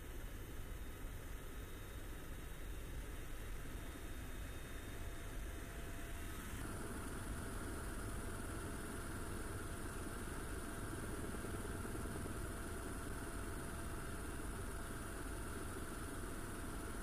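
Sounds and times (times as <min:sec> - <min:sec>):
faint steady tone: 0:00.0 - 0:17.0
helicopter engines and rotor: 0:05.7 - 0:17.0.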